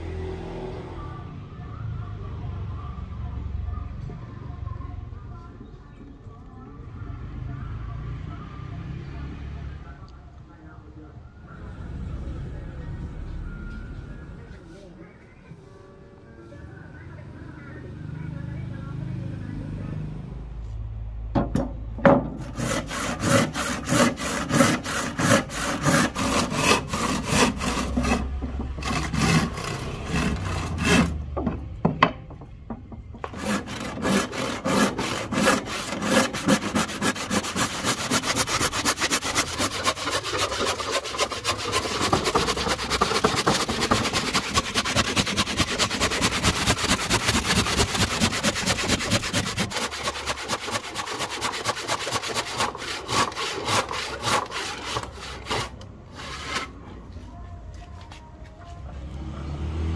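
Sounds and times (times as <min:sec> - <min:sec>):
hand saw cutting wood: 0:22.3 - 0:31.2, 0:33.2 - 0:56.8.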